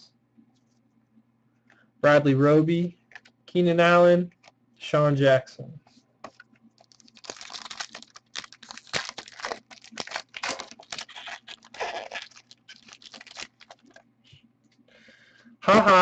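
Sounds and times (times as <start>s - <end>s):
foil wrapper tearing and crinkling: 6.8s - 14.0s.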